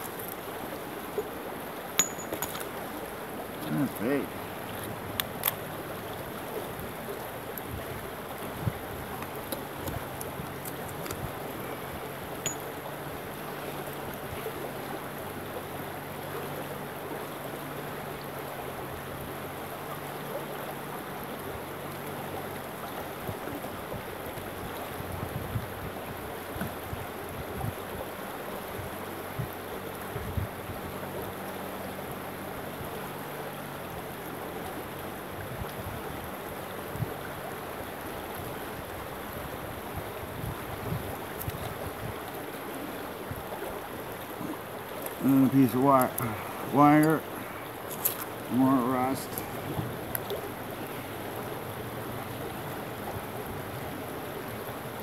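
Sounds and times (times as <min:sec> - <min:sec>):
stream running over rocks: 0:00.0 - 0:55.0.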